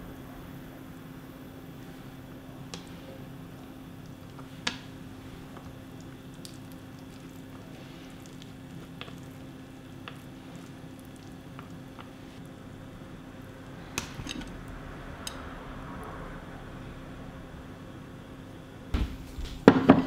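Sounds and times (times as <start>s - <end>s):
low steady hum: 0.0s - 20.0s
wet rice paper squishing: 3.8s - 12.5s.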